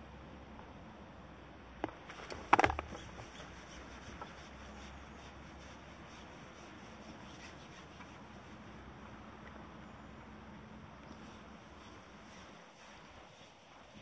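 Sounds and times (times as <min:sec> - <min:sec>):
fishing tackle clicks and knocks: 0:01.8 - 0:03.2.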